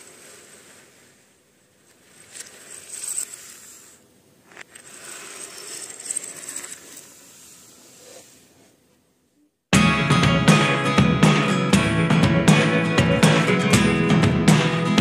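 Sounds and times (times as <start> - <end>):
plastic toy parts clattering: 1.9 - 7.3.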